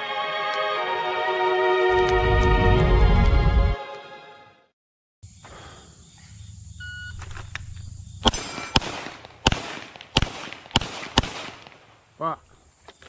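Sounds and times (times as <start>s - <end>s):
pistol shots: 8.2s - 11.9s.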